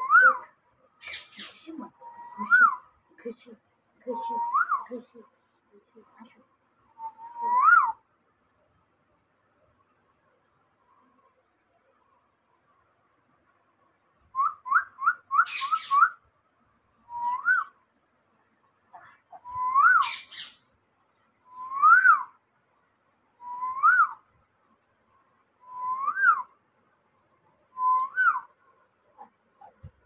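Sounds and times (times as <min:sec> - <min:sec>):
parakeet whistling: 0:14.4 - 0:16.2, 0:19.5 - 0:20.6.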